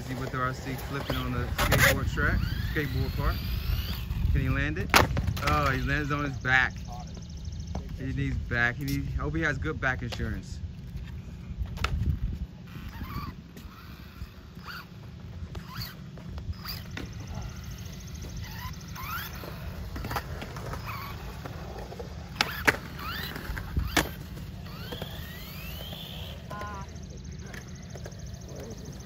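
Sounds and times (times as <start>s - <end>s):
electric motor whining: 0.0s - 6.5s, 11.8s - 29.0s.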